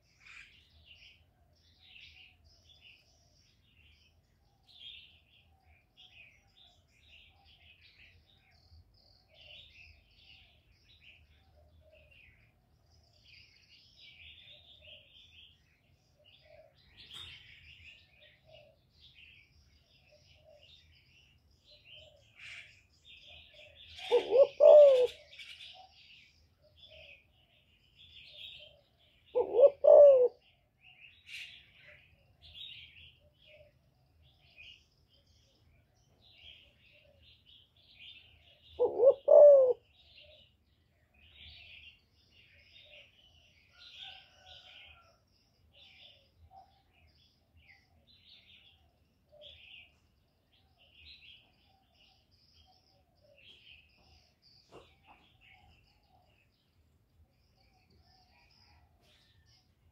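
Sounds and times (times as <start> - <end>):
small birds chirping: 0.0 - 59.9
dove cooing: 23.2 - 26.0, 28.4 - 30.5, 38.4 - 40.5.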